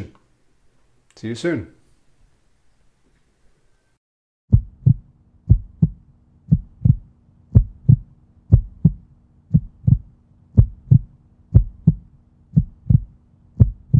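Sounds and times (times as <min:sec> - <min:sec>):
faint steady hum: 0:00.0 - 0:13.9
heartbeat thumps: 0:04.5 - 0:13.9.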